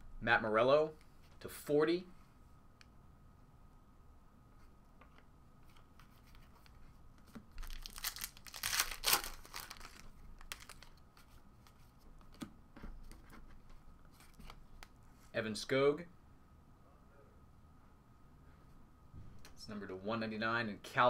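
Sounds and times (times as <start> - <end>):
wrapper tearing and crinkling: 7.6 - 11.0.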